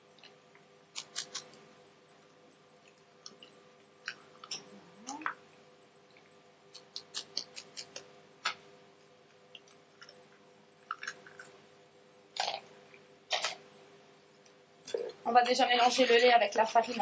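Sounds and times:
eggshells cracking: 0:10.8 - 0:11.6.

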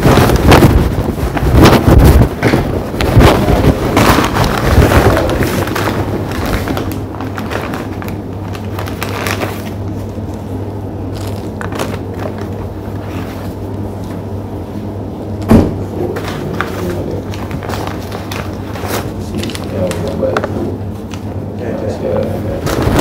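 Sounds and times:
microphone handling rubbing: 0:00.0 - 0:06.9
steady low hum: 0:00.0 - 0:23.0
loud knock: 0:15.5 - 0:15.8.

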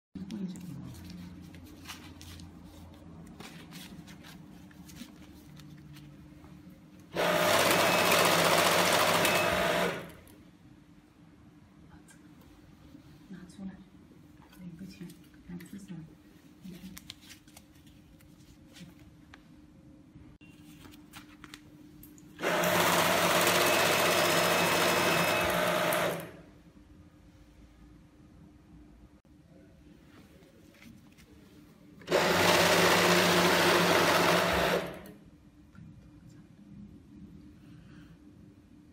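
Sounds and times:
banknote counting machine whirring: 0:07.1 - 0:10.2, 0:22.4 - 0:26.4, 0:32.1 - 0:35.1.

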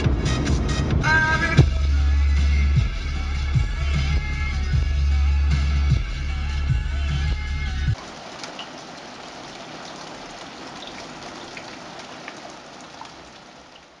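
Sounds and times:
heavy rain falling: 0:07.9 - 0:14.0
raindrop ticks: 0:08.0 - 0:14.0.

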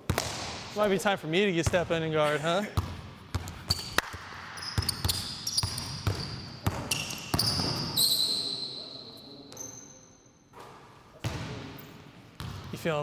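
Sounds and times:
basketball bouncing on gym floor: 0:00.0 - 0:00.7, 0:02.8 - 0:08.0, 0:12.4 - 0:12.7
sneaker squeaks on court: 0:03.3 - 0:04.0, 0:04.6 - 0:10.1.

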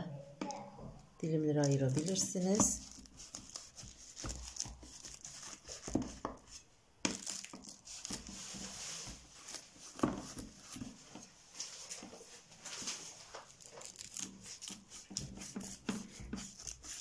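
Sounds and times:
knife cutting crisp crust: 0:13.7 - 0:17.0.

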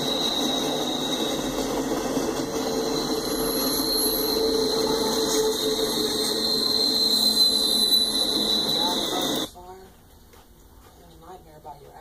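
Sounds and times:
high steady tone: 0:00.0 - 0:09.6
steel wheels on rails: 0:00.0 - 0:09.6.

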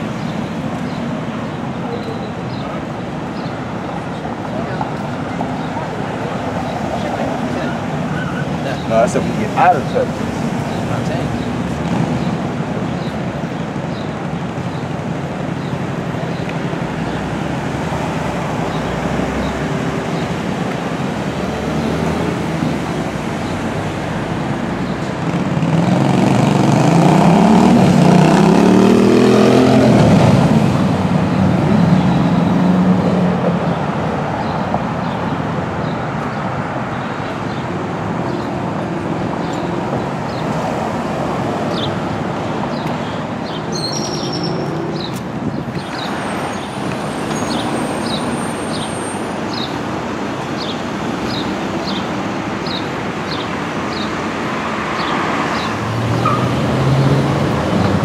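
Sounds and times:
city street traffic: 0:00.0 - 0:58.0
vehicle passing close: 0:17.0 - 0:33.9, 0:52.7 - 0:58.0
bird chirping: 0:42.7 - 0:45.2.

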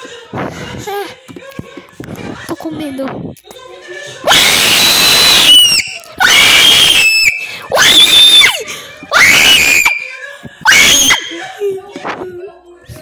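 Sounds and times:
children screaming: 0:04.3 - 0:11.4.

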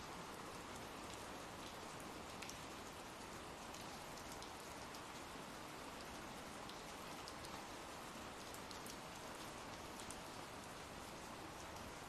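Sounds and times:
rain hiss: 0:00.0 - 0:12.0.

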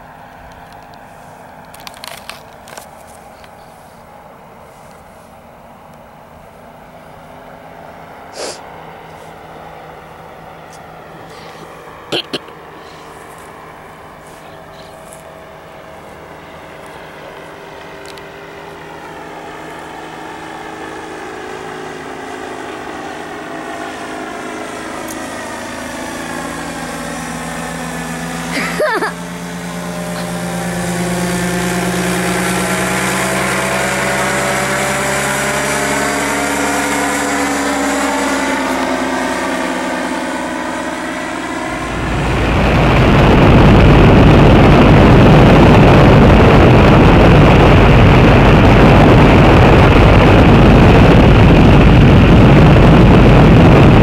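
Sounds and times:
paraglider engine and propeller droning: 0:00.0 - 0:54.0
loud wind noise: 0:41.0 - 0:54.0.

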